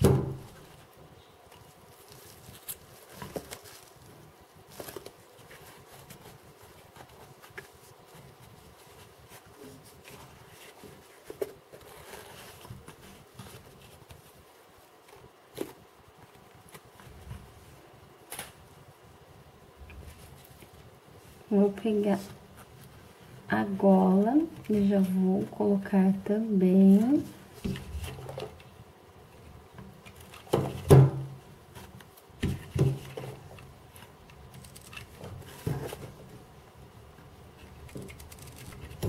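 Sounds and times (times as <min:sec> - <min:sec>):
fabric rustling: 0:00.0 - 0:18.9.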